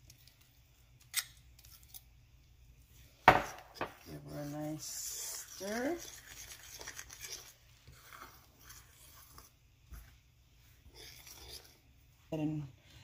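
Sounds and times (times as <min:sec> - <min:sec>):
utensil stirring dough in bowl: 0:02.6 - 0:13.0.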